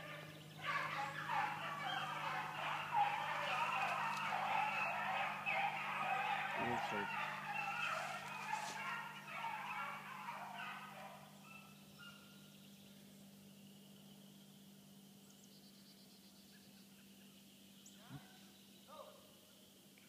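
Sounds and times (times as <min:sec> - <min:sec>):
hunting dogs baying: 0:00.0 - 0:12.4.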